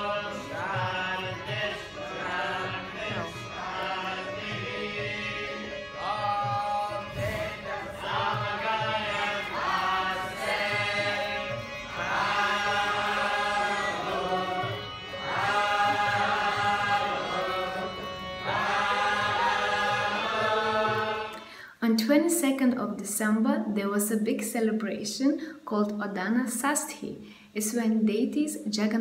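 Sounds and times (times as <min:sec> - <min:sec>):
hand-drum beat: 0:00.0 - 0:17.9
devotional chanting: 0:00.0 - 0:22.3.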